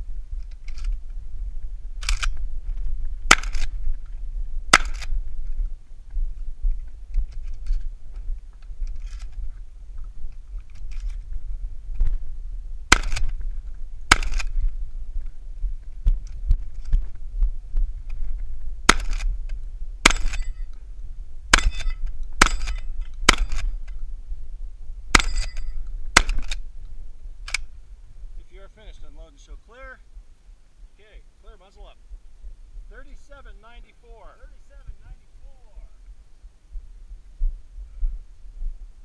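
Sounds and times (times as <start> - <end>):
steady low rumble: 0.0 - 39.0
shotgun shots: 3.3 - 3.7, 4.7 - 5.1, 12.9 - 13.3, 14.1 - 14.5, 18.9 - 19.3, 20.0 - 20.5, 21.5 - 23.7, 25.1 - 26.6.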